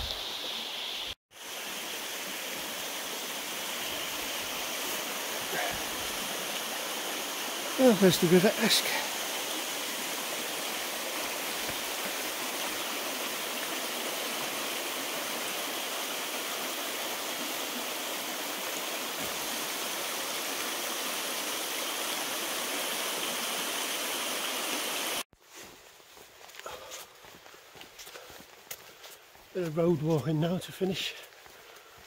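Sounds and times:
river rushing over rocks: 0:01.4 - 0:25.2.

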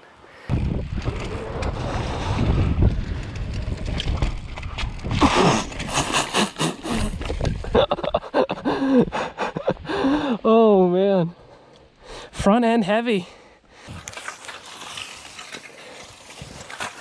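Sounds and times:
bike tyres rolling on dirt: 0:00.2 - 0:07.8, 0:13.8 - 0:17.0
wind on microphone: 0:00.5 - 0:08.7.

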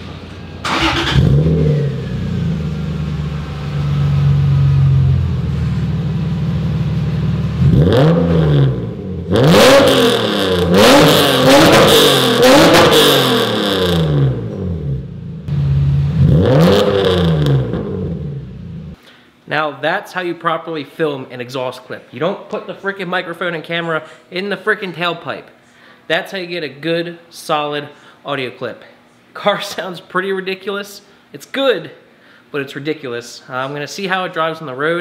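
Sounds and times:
loud aggressive exhaust: 0:00.0 - 0:19.0
car engine idling and revving: 0:00.4 - 0:19.0.

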